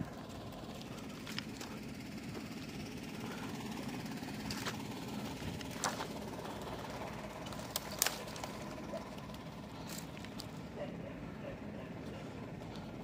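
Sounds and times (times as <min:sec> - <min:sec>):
low engine hum: 0:00.0 - 0:13.0
twigs snapping and crackling: 0:00.8 - 0:01.8, 0:04.3 - 0:10.7
branches being dragged: 0:04.4 - 0:10.6.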